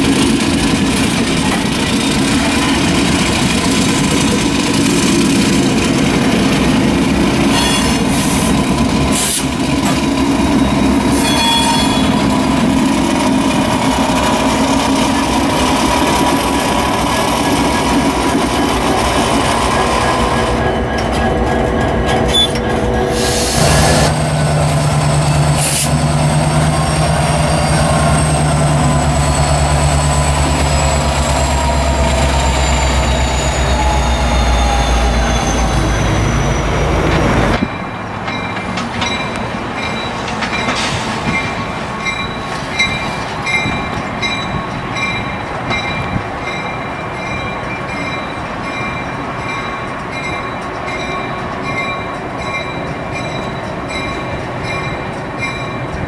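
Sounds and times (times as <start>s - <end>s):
diesel locomotive engine: 0.0s - 56.0s
high squeal falling in pitch: 11.2s - 12.3s, 30.5s - 37.0s
short high ringing tone: 11.2s - 12.3s.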